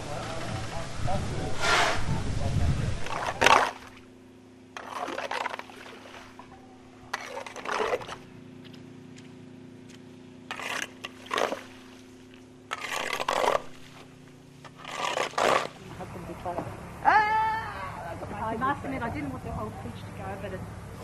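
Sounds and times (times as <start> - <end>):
steady low hum: 0.0 - 21.0
shovel scraping through wet mud: 2.9 - 4.0, 4.8 - 6.4, 7.1 - 8.8, 9.9 - 15.9.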